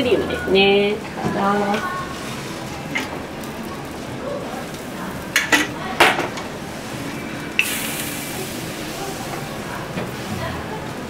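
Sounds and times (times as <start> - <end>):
batter sizzling on a griddle: 0.6 - 11.0
metal kitchenware clattering: 5.3 - 6.4.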